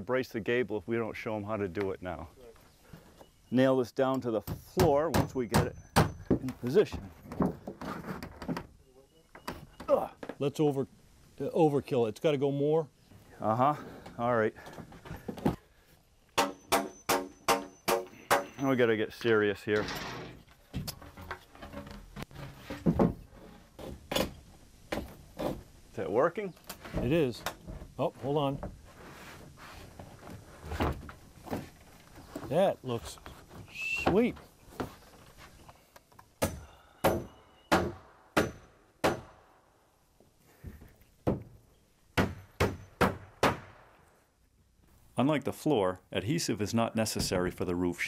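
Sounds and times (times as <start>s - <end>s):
wooden lumber knocking: 40.6s - 41.6s.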